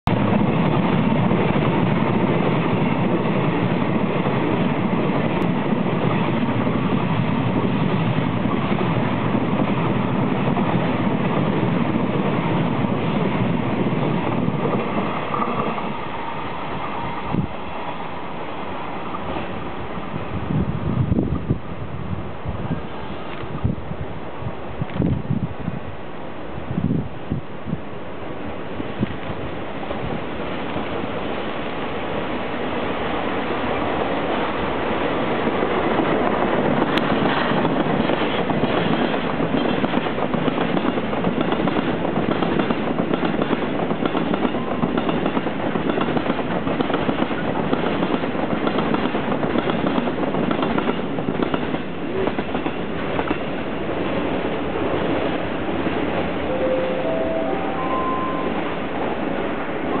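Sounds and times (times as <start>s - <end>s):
train wheels clacking on rail joints: 35.4s - 54.1s.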